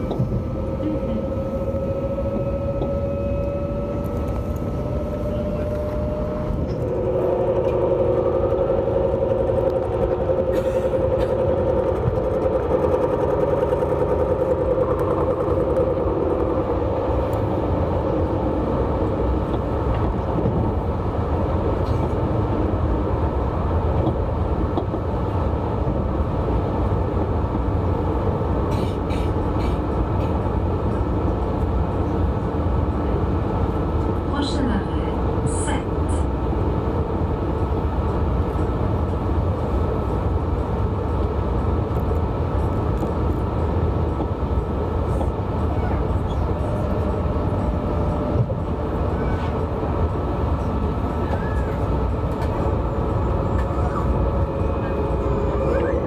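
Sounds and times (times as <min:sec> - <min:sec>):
whining drive tone: 0:00.0 - 0:21.7
train wheels rumbling on track: 0:00.0 - 0:56.0.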